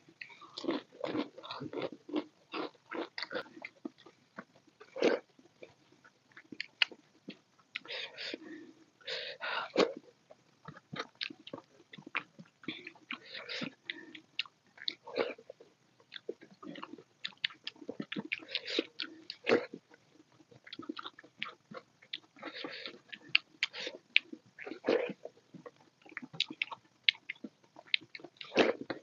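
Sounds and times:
wet chewing and lip smacking: 10.3s - 29.0s.

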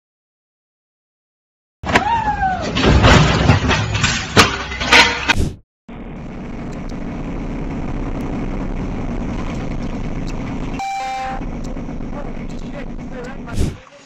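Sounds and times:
truck engine and road noise: 5.2s - 14.0s
short tone: 10.8s - 11.5s.

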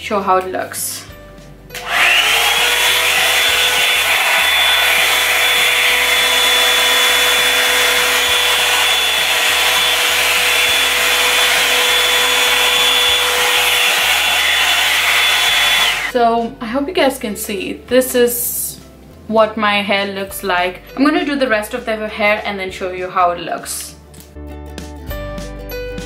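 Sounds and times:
hot-air brush fan whirring: 1.8s - 16.2s.

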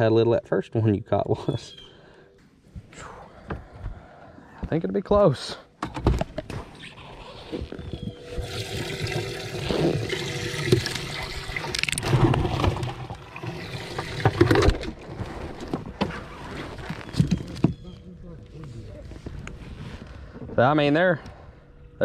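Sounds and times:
faint steady hum: 0.0s - 15.8s, 18.0s - 22.0s
water splashing and gurgling: 8.2s - 15.2s.

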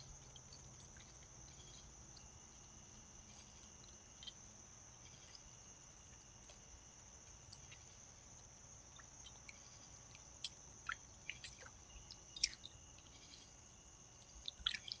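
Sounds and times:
insects chirring: 0.0s - 15.0s
water splashing in bird bath: 8.9s - 15.0s.

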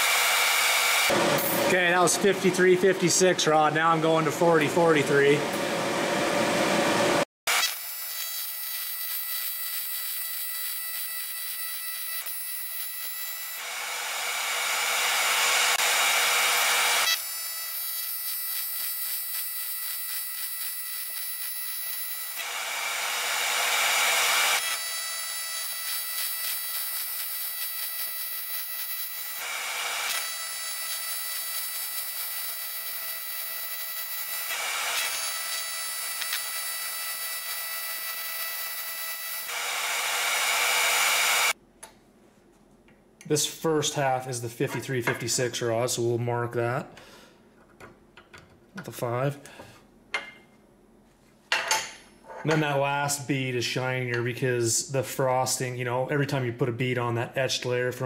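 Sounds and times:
welding arc buzzing and hissing: 7.5s - 41.6s.

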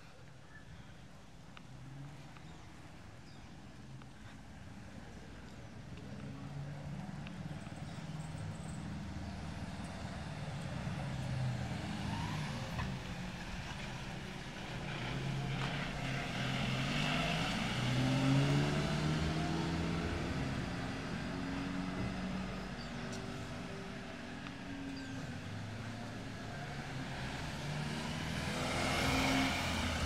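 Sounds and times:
vehicle engine passing: 9.4s - 24.3s, 25.0s - 30.0s.

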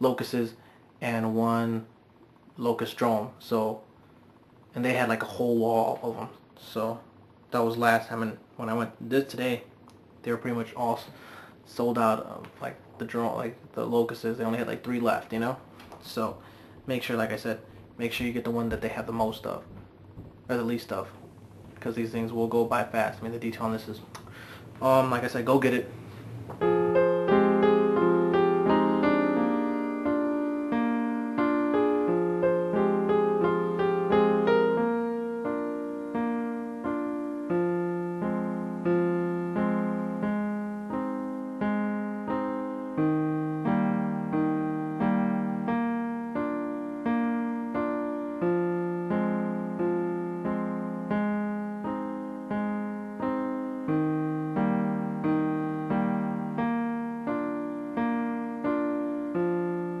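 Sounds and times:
slow piano music: 25.4s - 60.0s.

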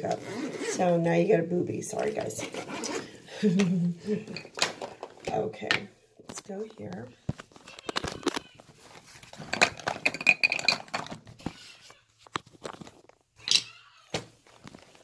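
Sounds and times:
small objects clicking and clattering: 7.4s - 11.6s, 12.2s - 13.8s.

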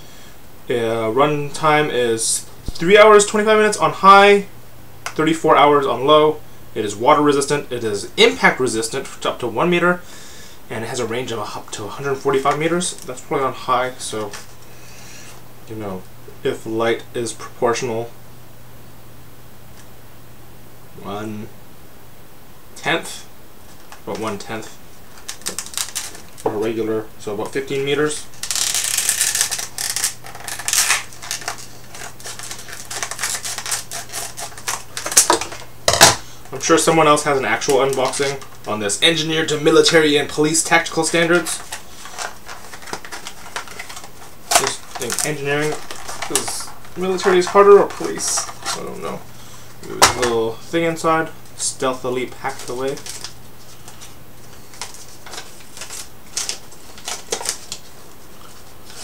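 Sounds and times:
paper and plastic rustling: 23.6s - 26.8s, 28.3s - 49.2s, 49.8s - 51.0s, 52.0s - 59.0s
plastic packaging crinkling: 23.6s - 26.8s, 28.3s - 50.6s, 52.0s - 59.0s.

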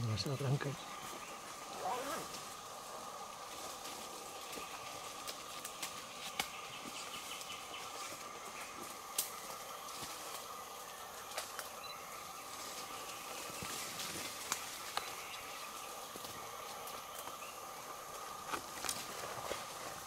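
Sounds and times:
high insect drone: 0.0s - 20.0s
sharp snaps and knocks: 5.2s - 6.6s, 14.4s - 15.1s.

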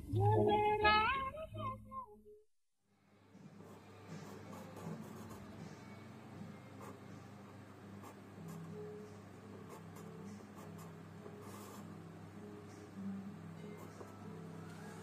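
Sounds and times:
pencil scratching on paper: 3.5s - 5.8s, 6.8s - 7.2s, 8.0s - 8.8s, 9.5s - 12.0s.

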